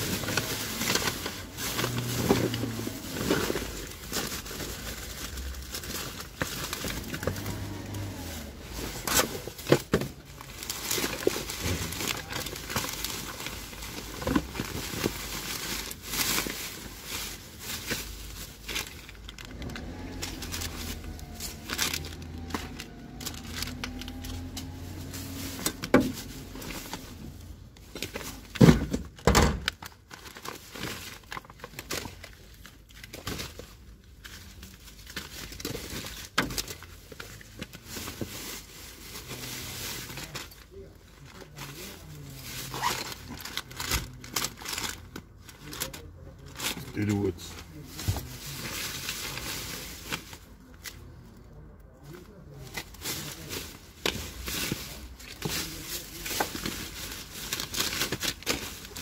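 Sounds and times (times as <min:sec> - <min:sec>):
plastic bags rustling and crinkling: 0:00.0 - 0:59.0.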